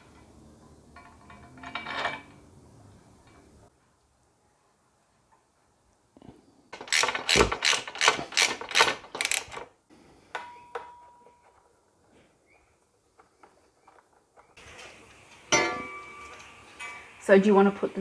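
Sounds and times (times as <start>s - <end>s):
ratchet wrench clicking: 6.8s - 9.6s.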